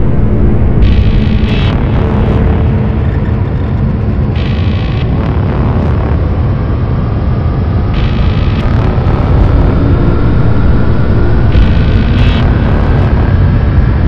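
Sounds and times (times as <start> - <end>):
deep rumble: 0.0 - 14.0
faint steady hum: 0.0 - 14.0.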